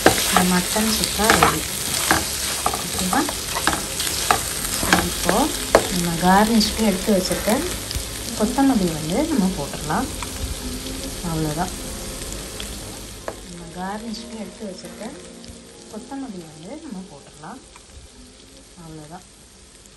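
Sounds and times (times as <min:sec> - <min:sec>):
spatula squeaking on pan: 0:00.0 - 0:06.0
wooden spatula scraping a pan: 0:00.0 - 0:06.7
meat sizzling in oil: 0:00.0 - 0:19.9.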